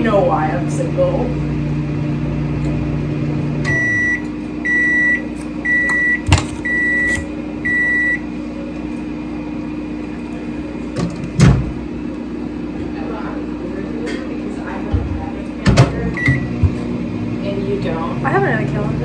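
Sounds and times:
microwave hum: 0.0s - 19.0s
microwave beeps: 3.6s - 8.3s, 16.1s - 16.7s.

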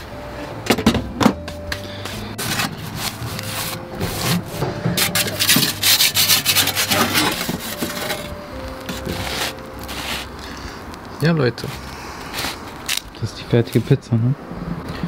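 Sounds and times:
metal peel scraping on stone: 5.0s - 8.3s.

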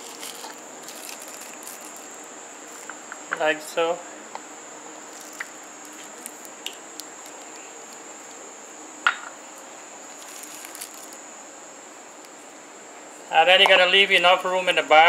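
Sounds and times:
plastic bag squishing: 0.0s - 2.1s, 5.1s - 8.0s, 10.1s - 11.2s.

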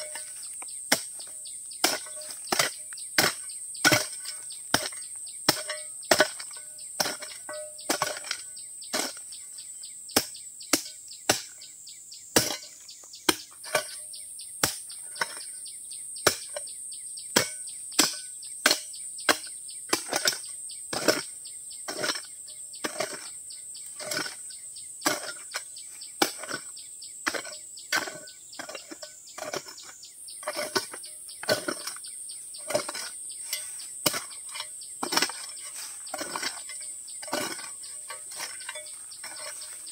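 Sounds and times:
chopping strikes: 10.2s - 11.6s.

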